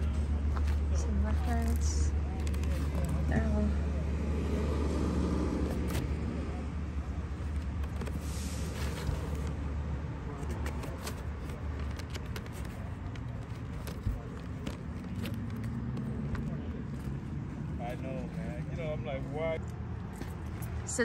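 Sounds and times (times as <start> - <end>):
record sleeves clicking: 0.4 - 3.3, 7.3 - 17.5
cardboard sliding: 5.6 - 6.5, 7.3 - 17.3.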